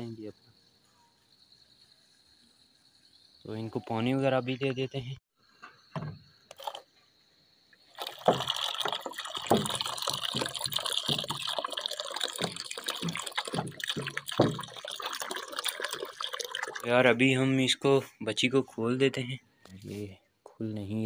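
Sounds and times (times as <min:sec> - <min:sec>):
water pouring into dish: 0:07.9 - 0:17.1.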